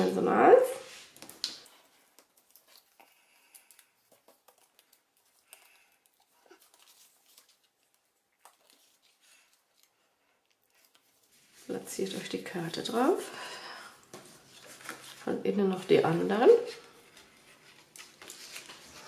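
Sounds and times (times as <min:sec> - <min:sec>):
paper ticks and rustles: 0:01.0 - 0:11.4, 0:14.1 - 0:15.2, 0:16.8 - 0:19.0.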